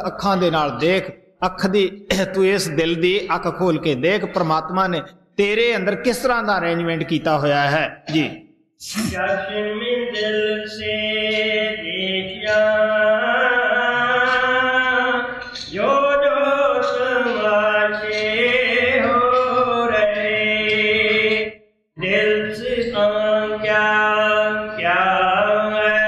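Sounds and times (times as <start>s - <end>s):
person chanting a hymn: 8.9s - 26.0s.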